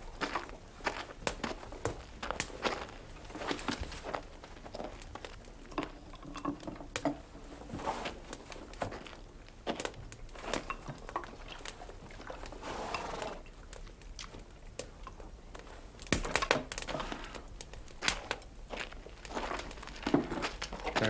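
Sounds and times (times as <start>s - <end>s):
dishes and pan clinking: 5.7s - 7.2s.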